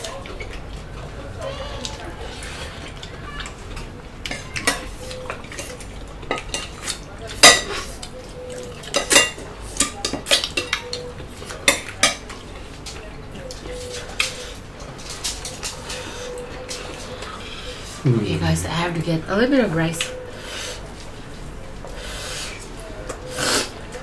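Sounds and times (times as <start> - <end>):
cutlery clinking on plates: 3.8 - 17.2.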